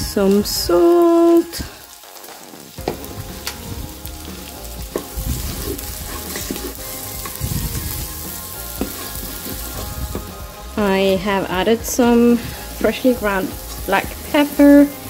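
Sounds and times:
onion sizzling in pot: 0.0s - 15.0s.

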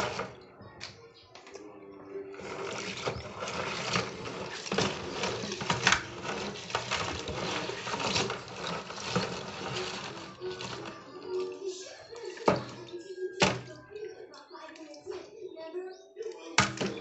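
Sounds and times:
crab shells clattering in basin: 2.4s - 11.6s.

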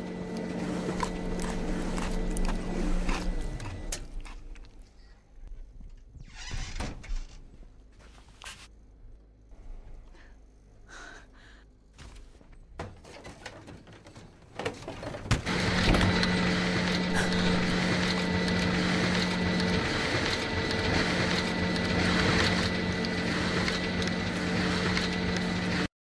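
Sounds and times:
photocopier whirring: 0.0s - 4.7s, 14.6s - 25.9s
photocopier clicks: 15.4s - 25.9s.

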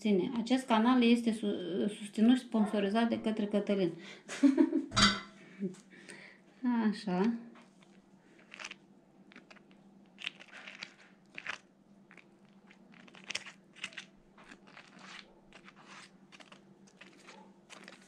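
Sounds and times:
crunching and scraping glaze: 7.2s - 18.0s.

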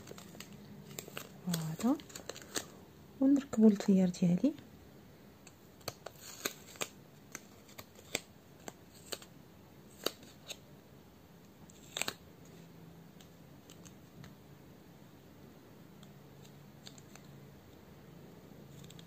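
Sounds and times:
paper clicks and crackles: 0.0s - 2.8s, 5.4s - 9.3s, 9.9s - 10.6s, 11.7s - 12.2s, 13.2s - 14.3s, 16.0s - 17.3s, 18.7s - 19.0s.

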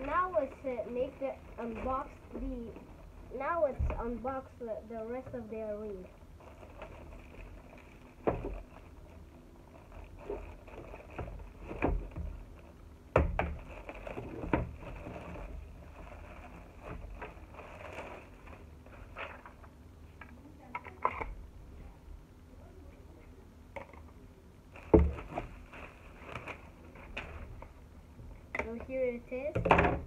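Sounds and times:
plastic packaging rustling: 0.0s - 4.6s, 5.5s - 12.8s, 13.4s - 19.7s, 24.7s - 27.7s.

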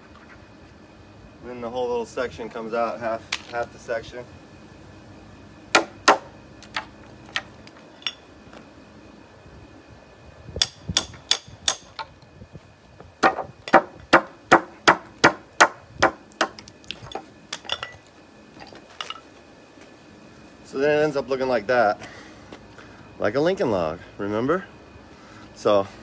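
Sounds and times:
hammer striking chisel into wood: 10.6s - 11.9s.

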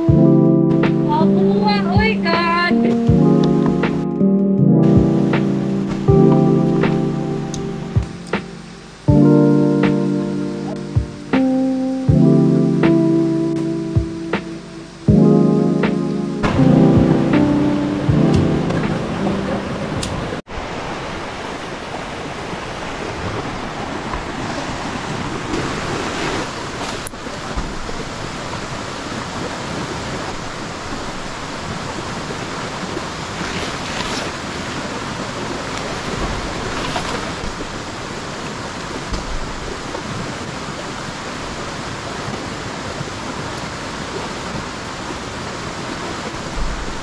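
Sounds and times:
river rushing over waterfall: 16.4s - 47.0s.

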